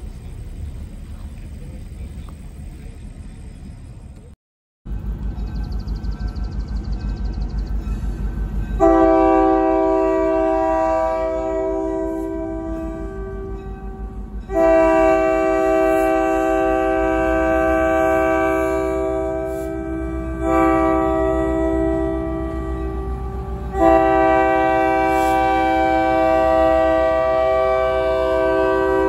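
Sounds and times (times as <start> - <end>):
locomotive air horn blasts: 8.8 - 29.0.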